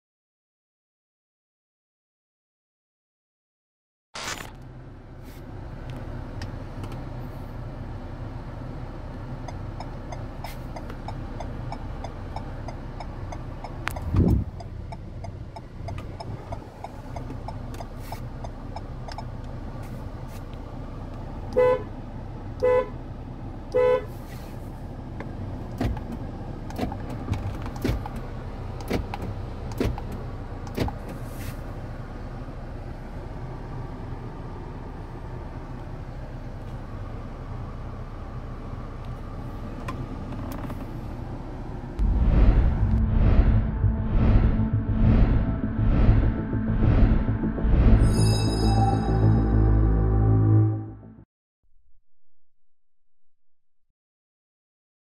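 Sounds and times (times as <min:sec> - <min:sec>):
engine idling hum: 0:04.5 - 0:51.2
car horn beeps: 0:21.5 - 0:22.0, 0:22.6 - 0:23.0, 0:23.7 - 0:24.3
loud thump: 0:42.0 - 0:48.0.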